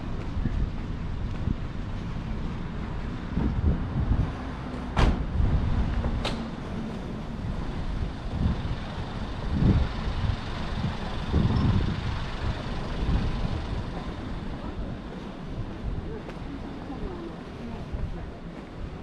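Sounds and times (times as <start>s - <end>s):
faint street rumble: 0.0s - 19.0s
wind buffeting microphone: 0.0s - 19.0s.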